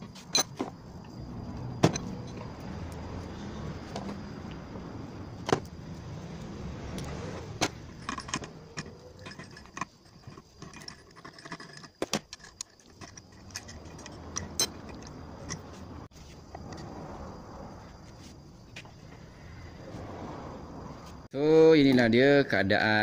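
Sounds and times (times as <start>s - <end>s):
metallic clicks of hand tools: 7.0s - 15.8s.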